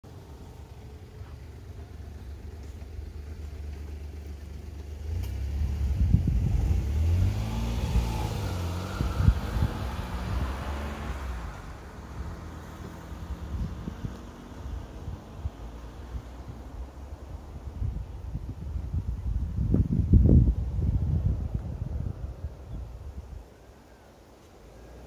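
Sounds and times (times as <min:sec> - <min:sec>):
car passing by: 0:04.8 - 0:17.8.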